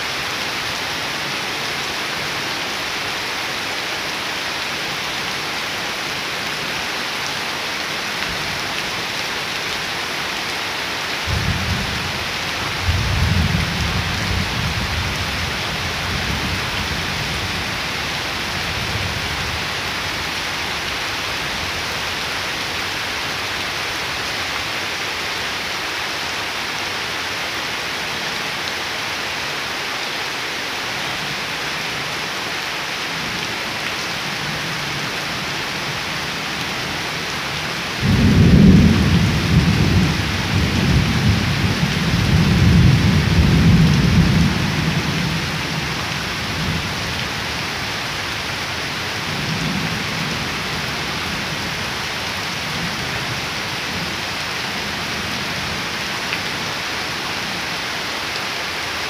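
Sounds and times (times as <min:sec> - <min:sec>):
heavy rain on ground and leaves: 0:00.0 - 0:59.0
thunder rumbling: 0:38.0 - 0:44.7.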